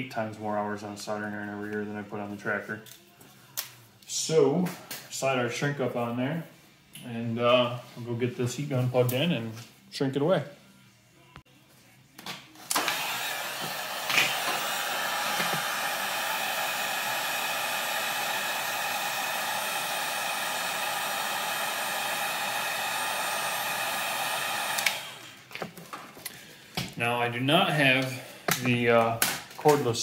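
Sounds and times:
heat gun blowing: 12.7s - 25.5s.

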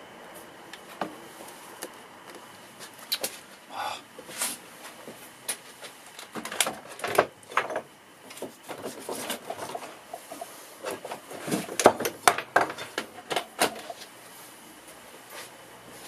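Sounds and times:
objects knocking and clattering: 6.3s - 14.0s.

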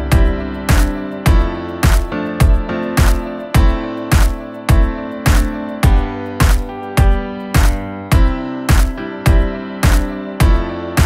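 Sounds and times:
background music with steady beat: 0.0s - 11.0s.

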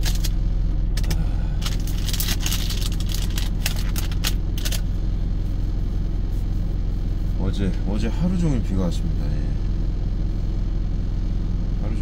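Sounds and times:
truck engine idling: 0.0s - 12.0s
food wrapping crinkling: 1.0s - 4.8s.

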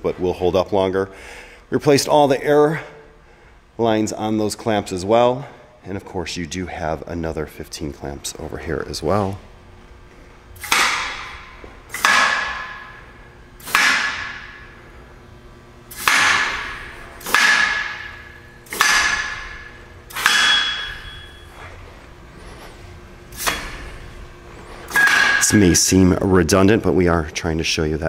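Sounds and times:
pneumatic air bursts hissing: 15.9s - 17.5s, 23.3s - 24.1s.

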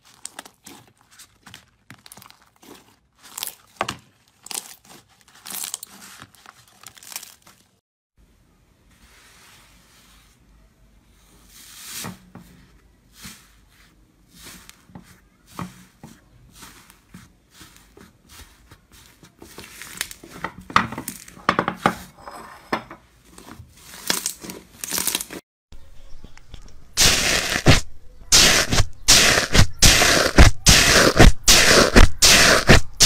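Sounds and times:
crackle of foamy slime: 0.0s - 7.8s, 23.8s - 25.4s
hands squeezing and tearing slime: 0.0s - 7.8s, 23.7s - 25.4s.

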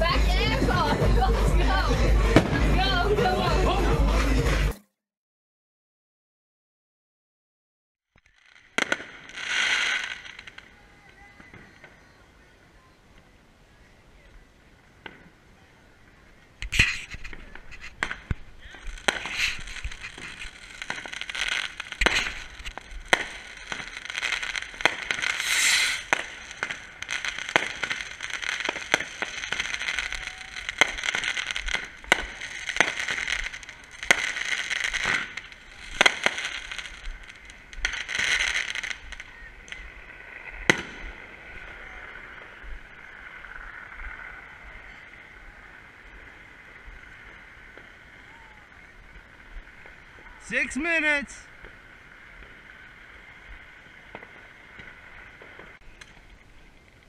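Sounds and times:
fireworks bangs: 0.0s - 4.8s, 8.2s - 12.6s, 14.4s - 56.3s
fireworks crackling: 0.0s - 4.8s, 8.2s - 57.0s.

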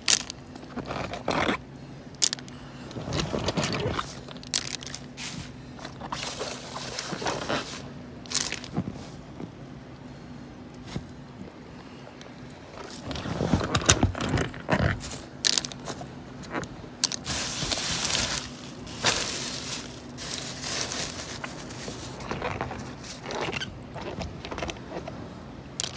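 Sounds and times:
faint low hum: 0.0s - 25.9s
plastic bag crinkling: 3.0s - 8.9s, 17.0s - 23.6s.

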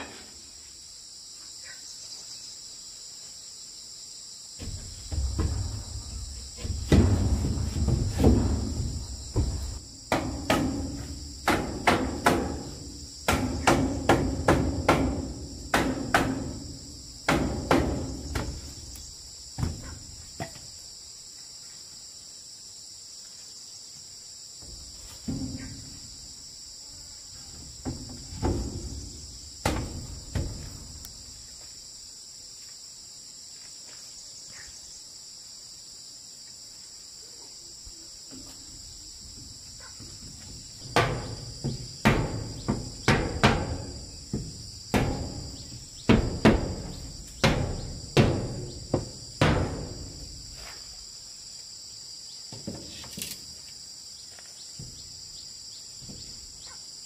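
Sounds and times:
insects droning: 0.0s - 57.0s
hammer striking wooden wall: 6.6s - 16.6s, 17.2s - 18.6s, 29.6s - 30.7s, 40.8s - 50.1s.

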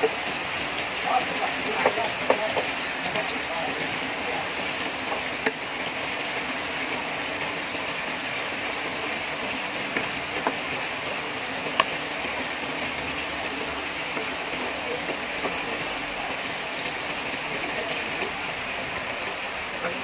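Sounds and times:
heavy rain: 0.0s - 20.0s.

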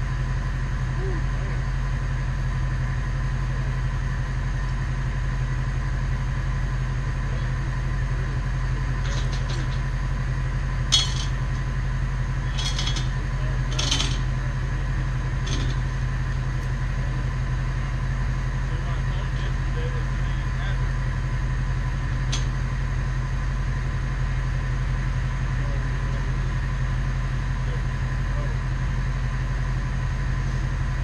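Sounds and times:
truck engine idling: 0.0s - 31.0s
short metallic clinks: 10.9s - 11.4s, 12.5s - 14.3s.

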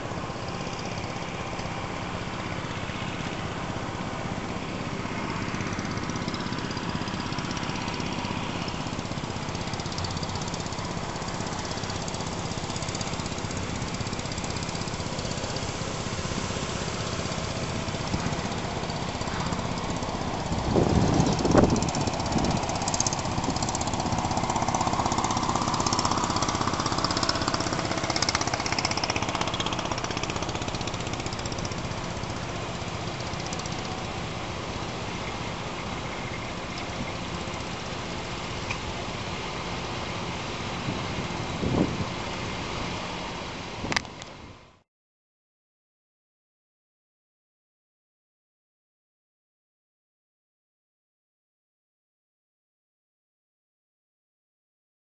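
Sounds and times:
engine droning: 0.0s - 44.8s
wind buffeting microphone: 17.7s - 25.4s, 40.7s - 42.3s.

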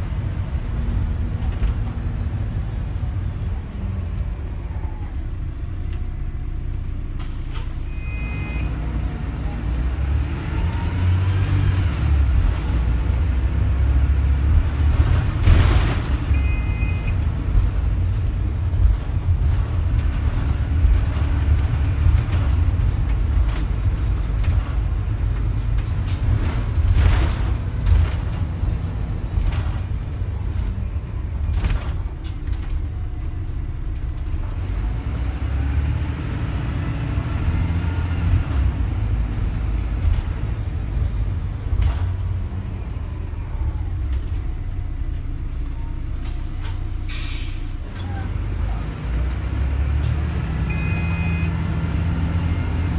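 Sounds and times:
bus diesel engine running: 0.0s - 52.9s
short air hisses: 46.3s - 47.7s.

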